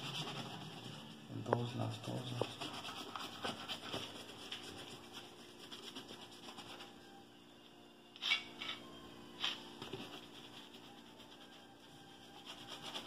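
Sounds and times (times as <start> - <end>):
brush rubbing leather boot: 0.0 - 7.0.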